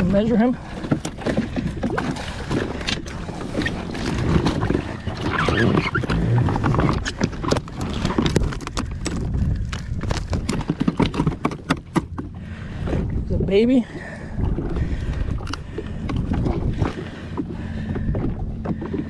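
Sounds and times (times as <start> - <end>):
steady low rumble: 0.0 - 19.0
fish flopping and slapping: 0.7 - 12.4.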